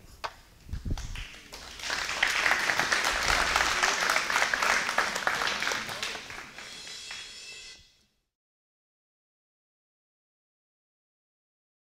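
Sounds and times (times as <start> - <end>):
audience applauding: 1.0 - 7.3.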